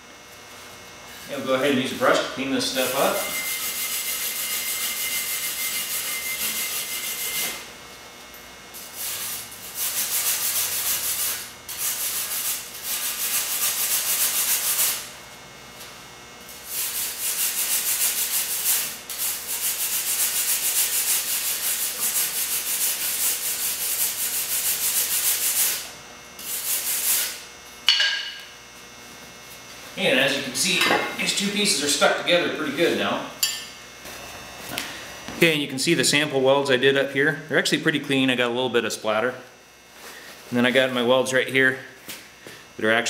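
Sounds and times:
brush scrubbing metal: 0:01.5 - 0:07.6, 0:08.8 - 0:15.0, 0:16.6 - 0:27.4.

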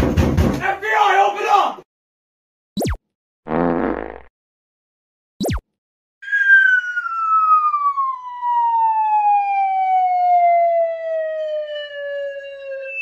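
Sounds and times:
falling whistle sliding down: 0:06.2 - 0:13.0.

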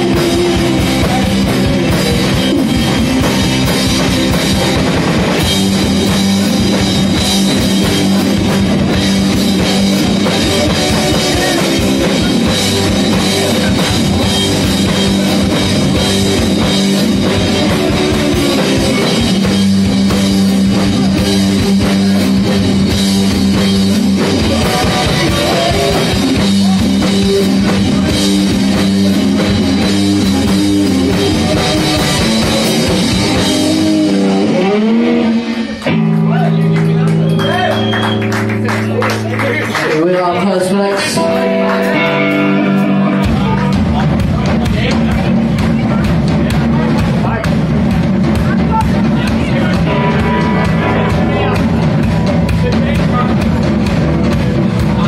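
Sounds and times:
live rock band playing: 0:00.0 - 0:55.0.

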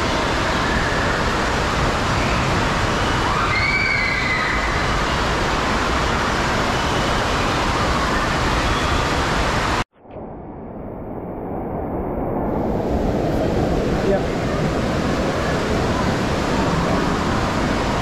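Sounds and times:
running water echoing: 0:12.5 - 0:18.0.

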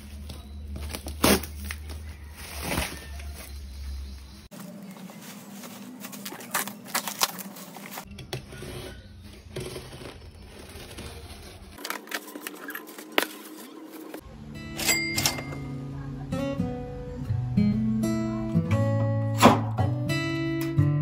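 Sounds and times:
cardboard crackles: 0:00.0 - 0:08.7, 0:09.3 - 0:14.2
packing tape tearing: 0:00.9 - 0:01.9, 0:06.0 - 0:08.0.

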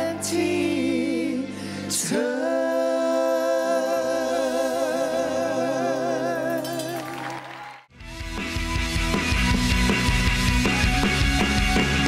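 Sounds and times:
voices singing in harmony: 0:00.0 - 0:07.4.

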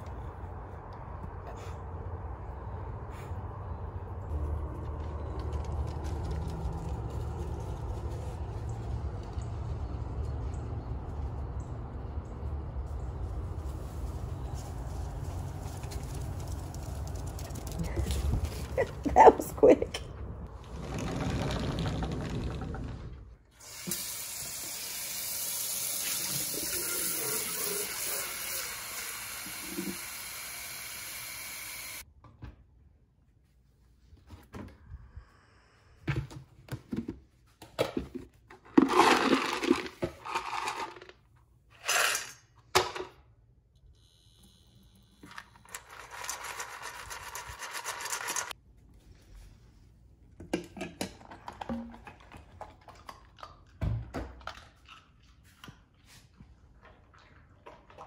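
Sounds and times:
kitchen tap running: 0:23.6 - 0:32.0.

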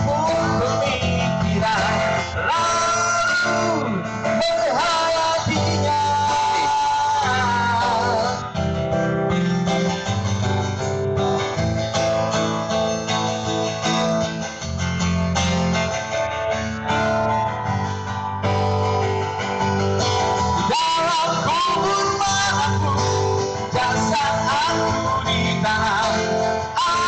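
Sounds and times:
person singing: 0:00.0 - 0:10.1, 0:19.5 - 0:27.0
live band music over pa: 0:00.0 - 0:27.0.

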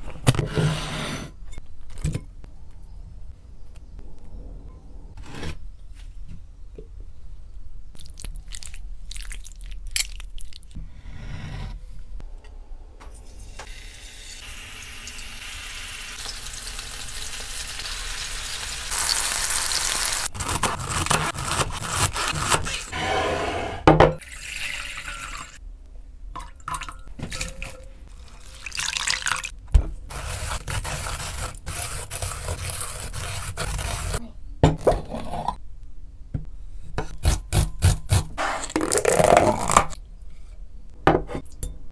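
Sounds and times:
chicken sizzling in oil: 0:13.7 - 0:20.3.

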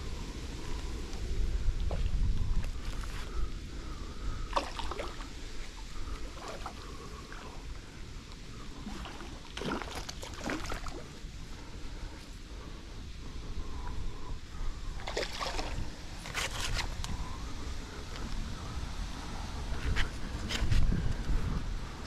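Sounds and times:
fish splashing in water: 0:04.5 - 0:05.4, 0:08.8 - 0:11.0, 0:15.0 - 0:16.4.

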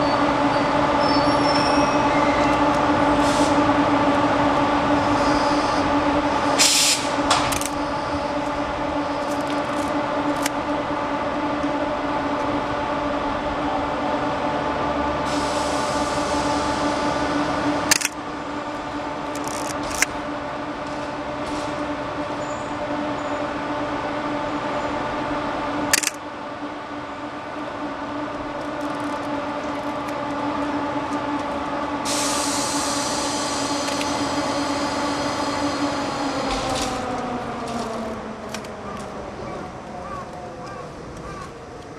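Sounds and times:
electric locomotive humming: 0:00.0 - 0:41.9
short air hisses: 0:06.6 - 0:07.1, 0:32.1 - 0:35.9
steady hiss: 0:32.1 - 0:36.4.

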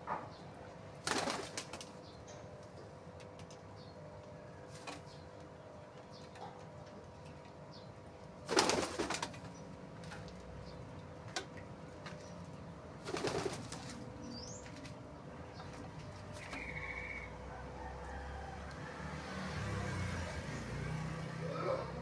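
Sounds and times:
pigeon wingbeats clattering: 0:00.9 - 0:03.7, 0:08.3 - 0:10.7, 0:11.3 - 0:17.0.

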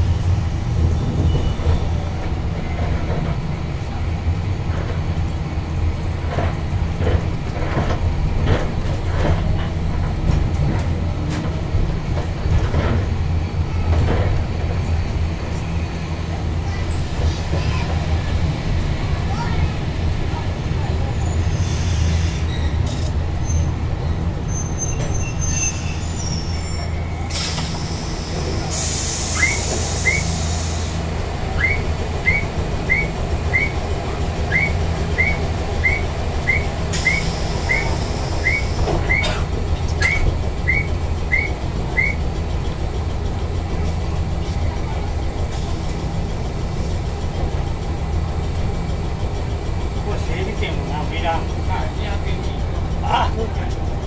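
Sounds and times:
tram low hum: 0:00.0 - 0:54.0
air brake hiss: 0:27.3 - 0:31.0, 0:36.9 - 0:39.5.

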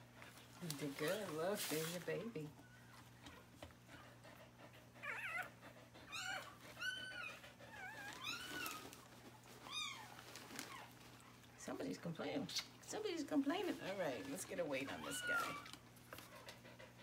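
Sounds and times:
puppy squealing: 0:05.0 - 0:08.9, 0:14.8 - 0:15.8.

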